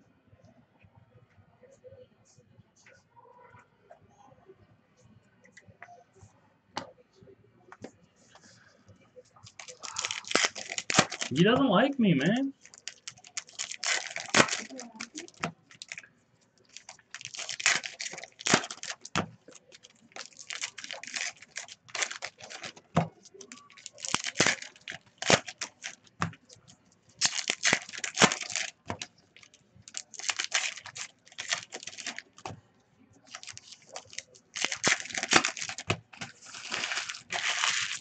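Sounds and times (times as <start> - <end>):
foil packs tearing and crinkling: 9.4 - 11.4, 12.2 - 16.0, 16.7 - 26.6, 27.2 - 32.4, 33.3 - 38.0.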